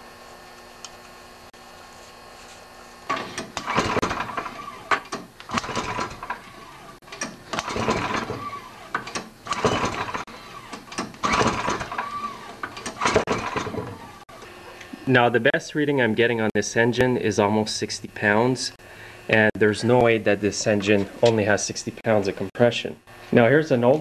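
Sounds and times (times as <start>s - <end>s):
recoil starter rope pulled: 3.1s - 14.2s
engine turning over without firing: 3.1s - 14.3s.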